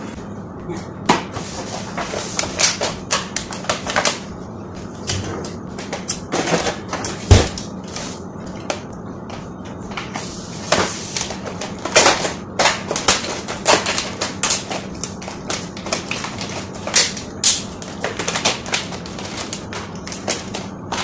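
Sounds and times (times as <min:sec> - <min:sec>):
plastic packaging crinkling: 0:11.2 - 0:21.0.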